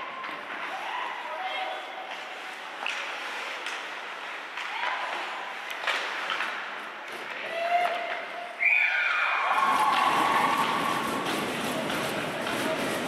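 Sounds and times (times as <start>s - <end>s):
skates scraping ice: 0.0s - 8.4s, 9.5s - 13.0s
crowd noise: 0.0s - 13.0s
hockey stick clacking puck: 2.1s - 8.3s, 9.9s - 13.0s
people shouting: 9.0s - 11.2s.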